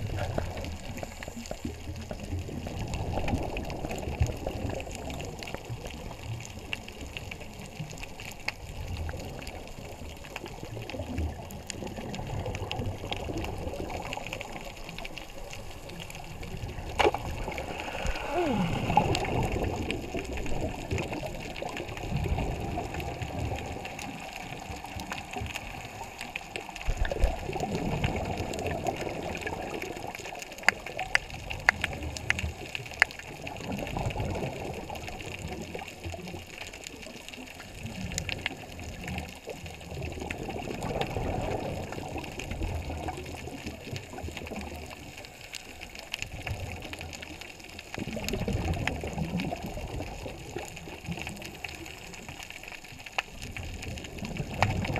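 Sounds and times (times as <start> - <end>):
underwater bubbles surging: 0.0 - 54.9
small clicks: 24.0 - 34.2.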